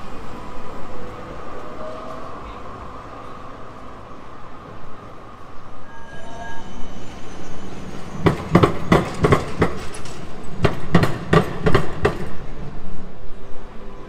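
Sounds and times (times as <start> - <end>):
street noise: 0.0 - 14.0
tram wheels clacking over joints: 7.6 - 12.7.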